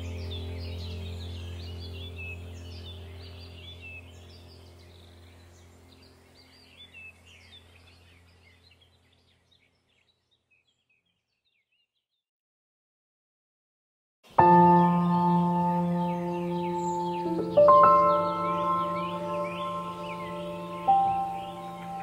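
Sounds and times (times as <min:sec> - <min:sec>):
steady low drone: 0:00.0 - 0:08.3, 0:14.4 - 0:22.0
birds chirping: 0:00.0 - 0:12.0, 0:14.3 - 0:22.0.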